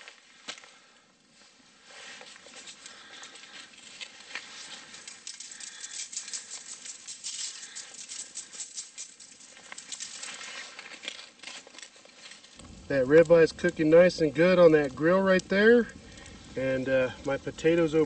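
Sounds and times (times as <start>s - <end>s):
seasoning grains pattering on meat: 4.4s - 10.5s.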